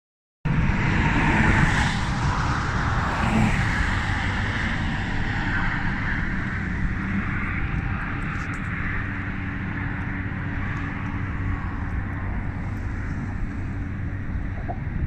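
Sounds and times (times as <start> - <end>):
road traffic rushing: 0.5 - 15.0.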